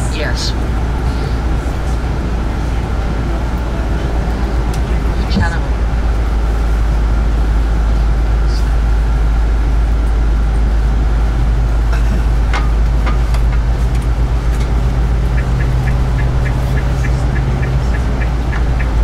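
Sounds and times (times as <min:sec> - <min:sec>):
engine and road rumble: 0:00.0 - 0:19.0
low steady drone: 0:00.0 - 0:19.0.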